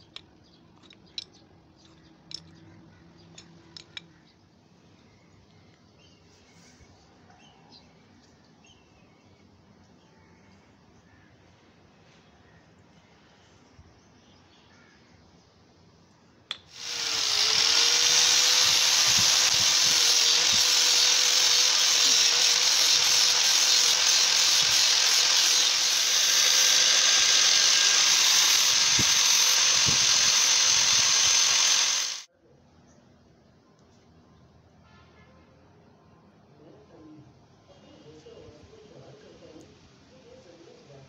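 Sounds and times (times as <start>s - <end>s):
angle grinder whining: 16.7s - 32.3s.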